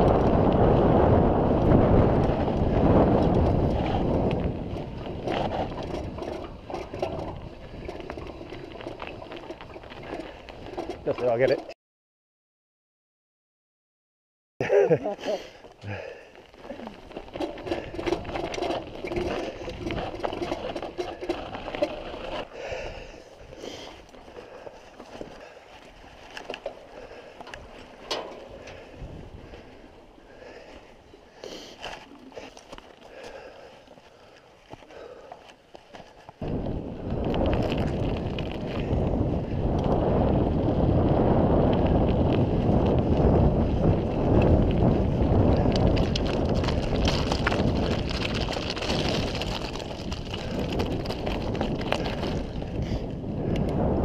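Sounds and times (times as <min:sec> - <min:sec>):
wind on microphone: 0:00.0 - 0:11.0, 0:28.4 - 0:30.7, 0:36.4 - 0:54.0
bike frame and chain rattling: 0:00.0 - 0:11.8, 0:15.9 - 0:29.8, 0:34.7 - 0:53.9
tyres rolling on dirt: 0:00.0 - 0:11.8, 0:14.6 - 0:54.0.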